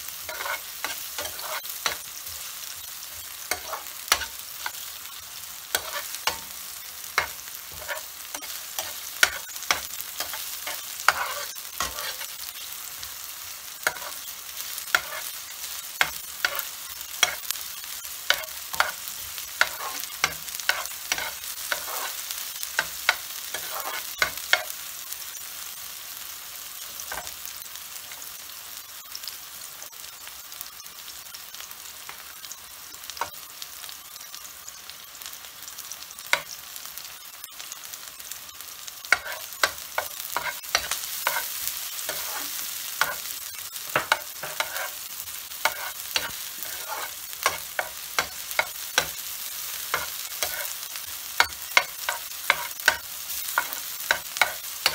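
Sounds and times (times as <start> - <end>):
onion sizzling in oil: 0.0 - 54.9
spatula scraping a frying pan: 0.1 - 2.5, 3.1 - 4.8, 5.7 - 13.1, 13.8 - 17.5, 18.3 - 24.8, 39.0 - 50.8, 51.4 - 54.9.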